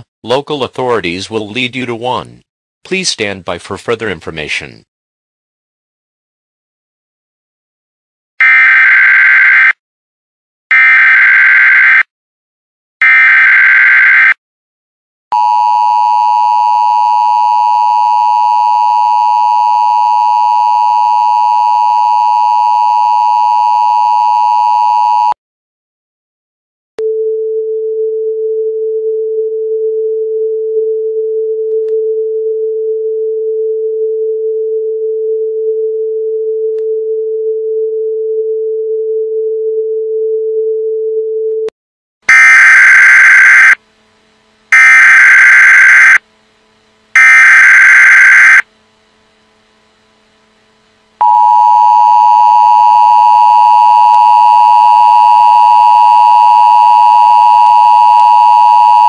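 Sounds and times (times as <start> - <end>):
two-tone attention signal: 44.8 - 46.2, 47.2 - 48.6
warbling data tones: 47.2 - 48.6.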